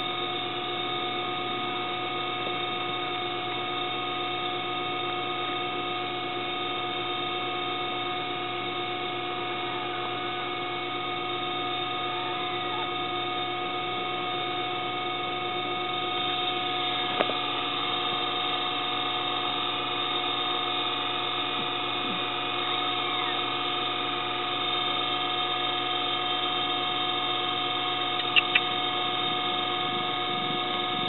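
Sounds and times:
steady electrical hum: 0.0s - 31.0s
clicks: 28.2s - 28.7s.

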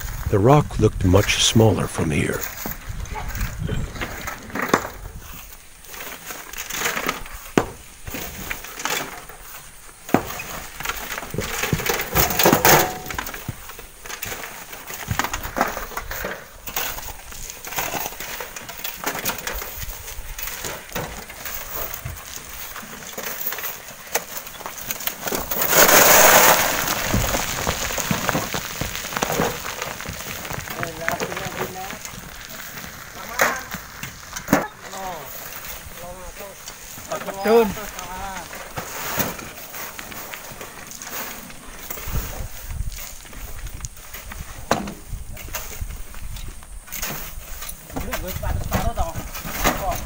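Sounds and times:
stones and sand sliding: 0.0s - 50.0s
shovels scraping sand: 1.0s - 44.6s
stones knocking and clinking: 20.6s - 34.6s.

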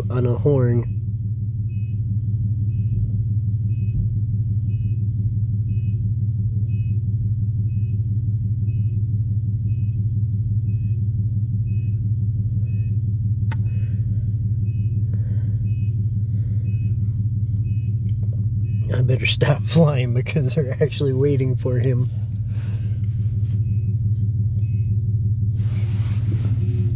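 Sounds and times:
single click: 13.5s - 13.7s
faint high beeps: 14.6s - 16.0s, 16.6s - 19.9s, 23.6s - 25.0s.

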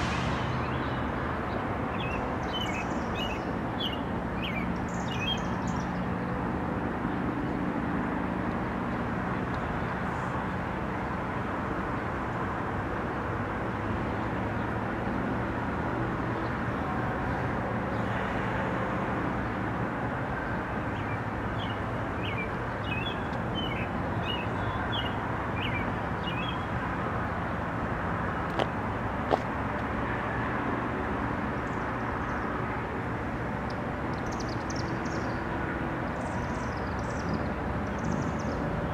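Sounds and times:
birds chirping: 0.0s - 6.2s, 20.8s - 26.8s, 33.7s - 35.5s, 36.2s - 38.9s
diesel locomotive rumble: 0.0s - 30.0s.

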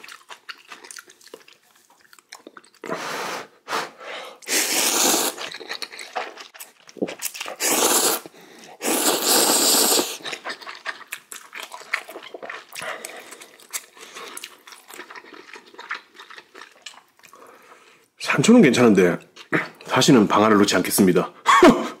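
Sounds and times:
wet chewing: 0.0s - 2.9s, 4.8s - 17.8s
noodles slurped loudly: 4.4s - 15.2s.

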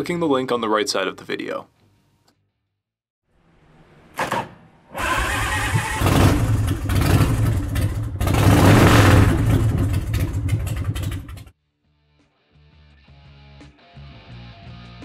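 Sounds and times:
motorcycle engine cranking and revving: 5.0s - 11.5s.

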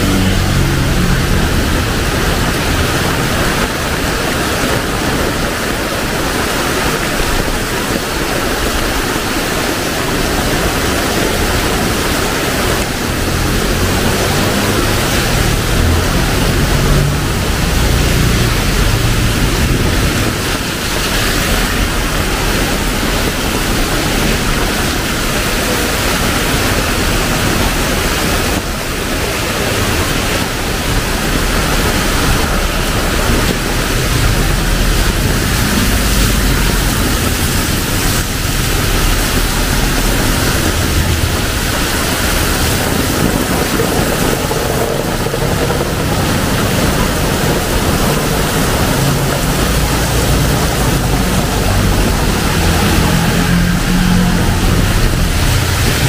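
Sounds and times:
low rumble: 0.0s - 5.4s, 11.8s - 25.7s, 26.6s - 56.0s
heavy rain on pavement: 0.0s - 56.0s.

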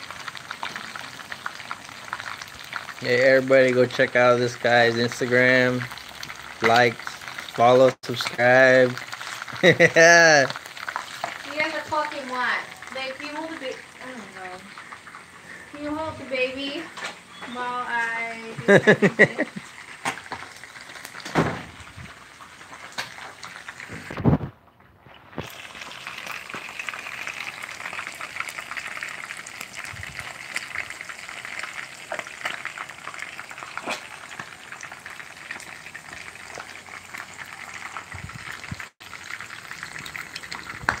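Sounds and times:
fish sizzling in hot oil: 0.0s - 41.0s
crackling pops: 5.8s - 13.8s, 19.6s - 41.0s
loud thump: 21.3s - 21.8s.

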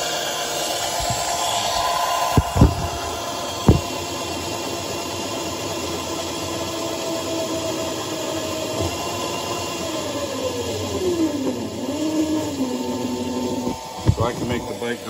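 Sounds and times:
electric motor and chain whine: 0.0s - 15.0s
sharp knocks: 0.9s - 4.1s.

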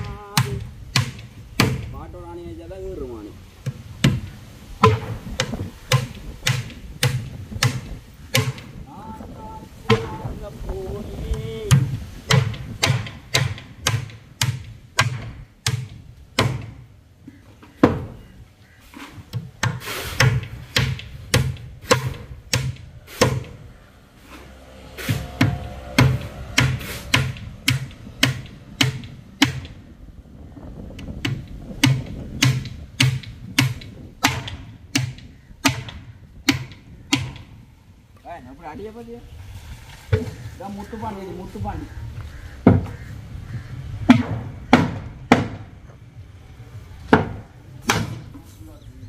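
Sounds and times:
hammer striking concrete: 0.0s - 2.0s, 3.6s - 8.7s, 11.7s - 16.8s, 19.3s - 23.6s, 25.0s - 29.8s, 31.3s - 37.5s, 44.1s - 45.7s, 47.1s - 48.4s.

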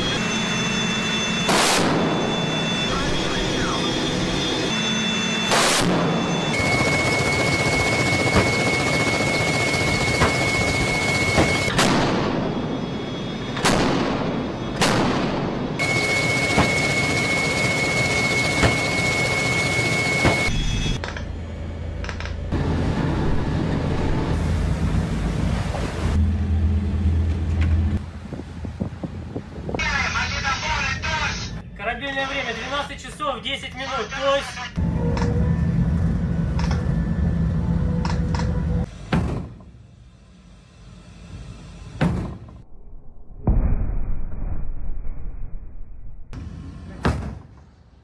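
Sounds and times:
ship engines humming: 0.0s - 5.6s, 15.7s - 32.9s, 34.6s - 42.0s
steady low rumble: 20.6s - 31.8s
wind buffeting microphone: 28.0s - 29.9s.

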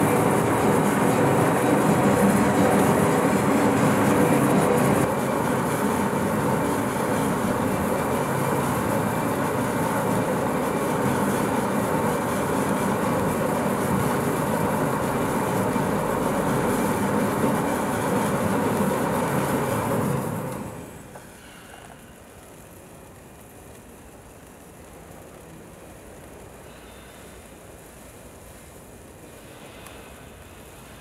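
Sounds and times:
stretch-wrapping machine running: 0.0s - 21.1s.

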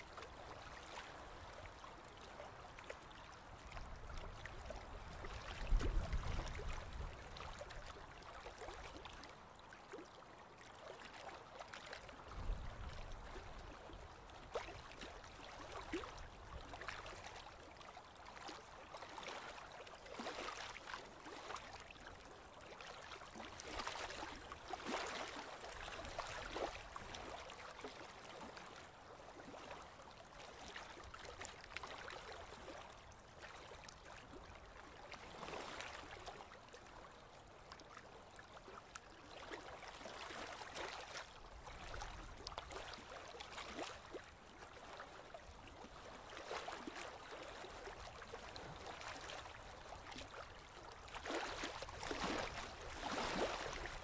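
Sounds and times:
water lapping against boat hull: 0.0s - 54.0s
water splashing: 51.2s - 54.0s.

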